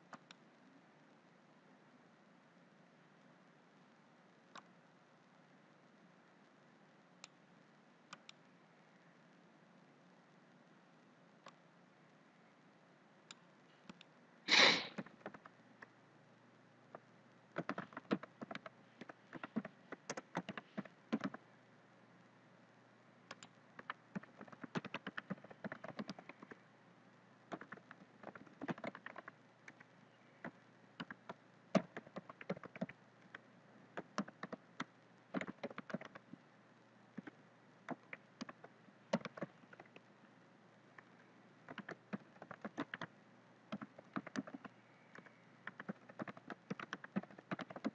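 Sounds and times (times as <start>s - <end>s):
keyboard typing: 14.8s - 15.9s, 16.9s - 21.4s, 23.3s - 26.6s, 27.5s - 36.4s, 37.2s - 40.0s, 41.0s - 43.1s, 43.7s - 47.9s.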